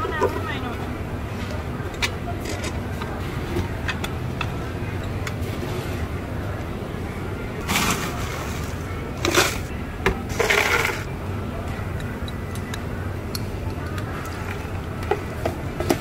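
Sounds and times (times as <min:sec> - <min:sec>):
metal scoop scraping crushed ice: 0:07.7 - 0:09.7, 0:10.3 - 0:11.1.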